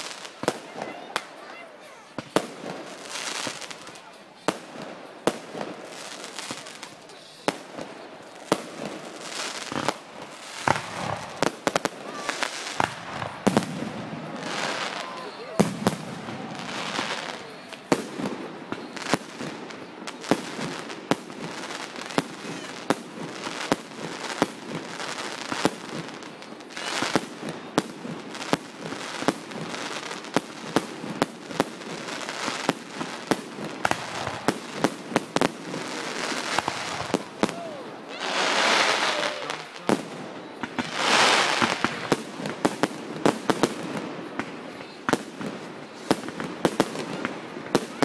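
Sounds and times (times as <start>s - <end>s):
firework bangs: 0.0s - 48.0s
firework hiss: 2.1s - 48.0s.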